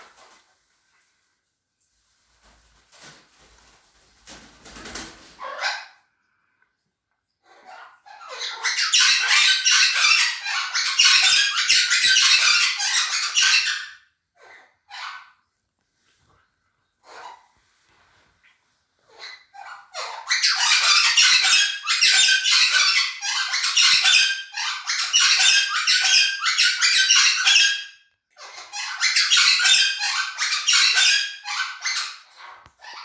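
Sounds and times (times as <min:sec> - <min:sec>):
parrots screeching: 0:05.4 - 0:06.0, 0:07.4 - 0:15.4, 0:17.0 - 0:17.5, 0:19.0 - 0:33.0.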